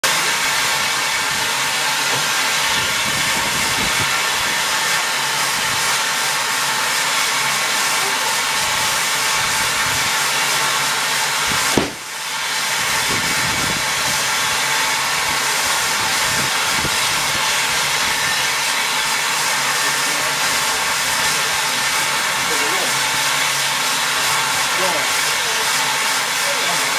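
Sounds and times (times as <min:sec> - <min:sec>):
steam hissing from locomotive: 0:00.0 - 0:26.9
sharp knock: 0:11.7 - 0:12.0.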